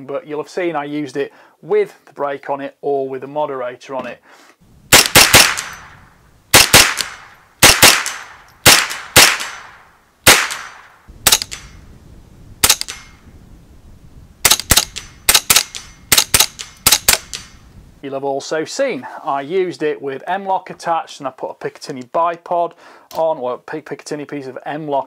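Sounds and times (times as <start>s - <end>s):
rifle gunshots with echo: 4.9s - 11.8s, 12.6s - 13.2s, 14.4s - 17.6s.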